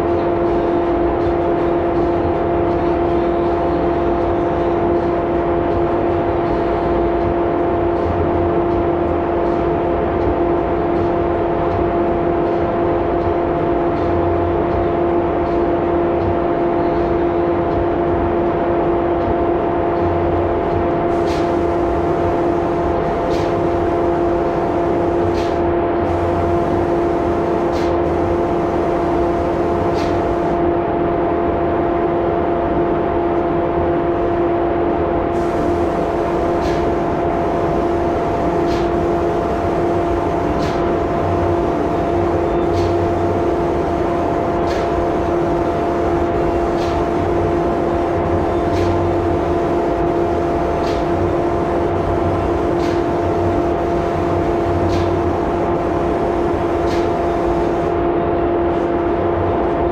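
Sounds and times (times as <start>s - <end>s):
spray equipment humming: 21.1s - 30.6s, 35.3s - 58.0s
spray gun hissing: 21.1s - 30.6s, 35.4s - 57.9s.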